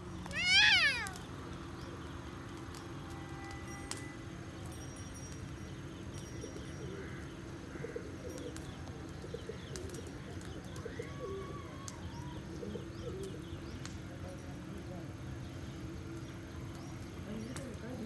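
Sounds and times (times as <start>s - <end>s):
small birds chirping: 0.0s - 2.5s, 11.8s - 18.0s
low background hum: 0.0s - 18.0s
doves cooing: 0.2s - 1.3s, 6.6s - 13.6s.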